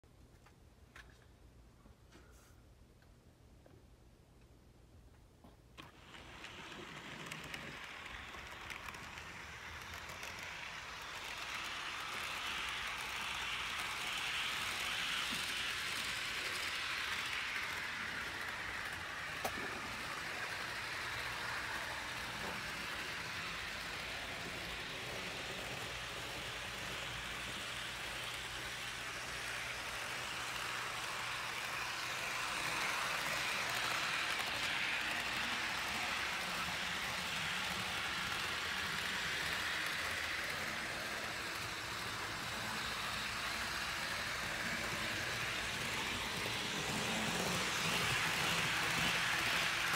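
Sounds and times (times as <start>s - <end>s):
model train motor whirring: 5.8s - 49.9s
wheels hissing on track: 5.8s - 49.9s.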